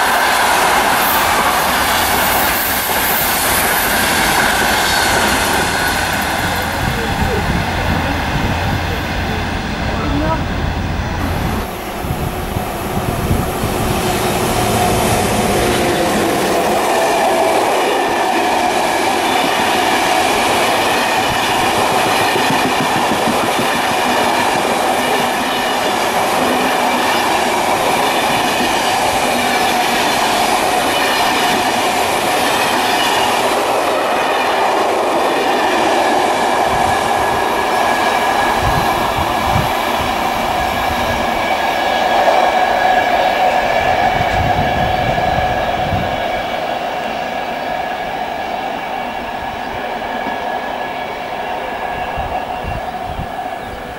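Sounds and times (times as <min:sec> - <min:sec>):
train wheels rushing on rail: 0:00.0 - 0:53.9
clickety-clack over rail joints: 0:18.7 - 0:44.8.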